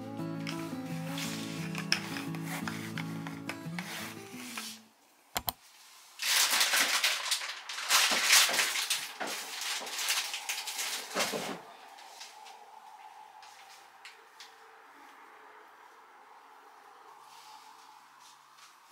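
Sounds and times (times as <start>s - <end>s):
things rustling and clattering: 0.5s - 3.7s, 6.2s - 11.7s
faint hum: 8.9s - 18.9s.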